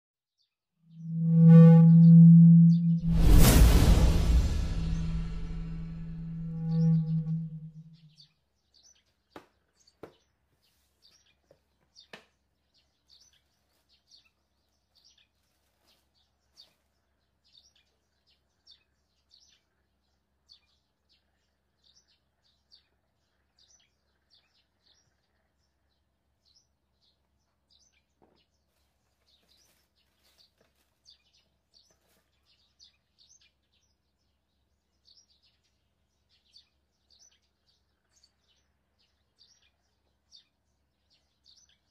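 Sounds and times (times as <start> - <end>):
faint bird chirps: 0.9 - 3.1, 4.8 - 8.3.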